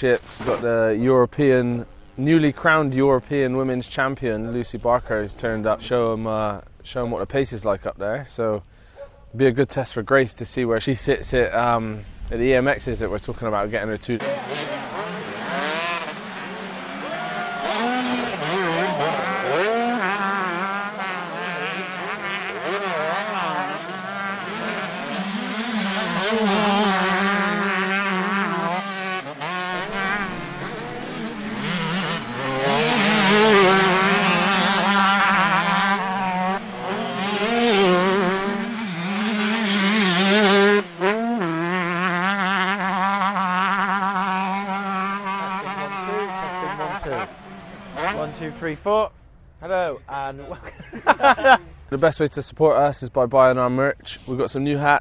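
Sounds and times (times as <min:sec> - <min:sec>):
motocross bike engine revving: 0:00.0 - 0:03.7, 0:11.6 - 0:49.0.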